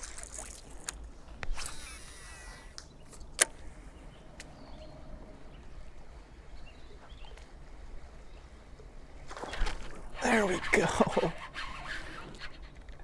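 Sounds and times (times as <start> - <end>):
river water washing: 0.0 - 0.9.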